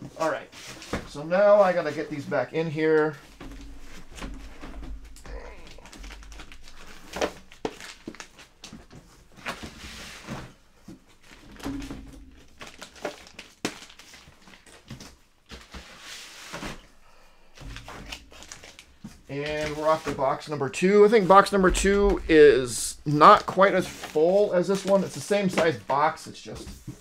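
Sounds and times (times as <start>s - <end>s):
crinkling: 3.1s - 22.4s.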